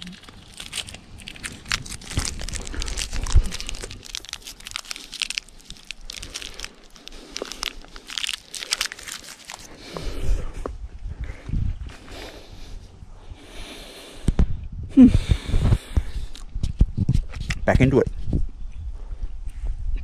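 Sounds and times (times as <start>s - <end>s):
plastic wrapper crinkling: 0.0s - 9.8s
crunchy chewing: 0.0s - 10.6s.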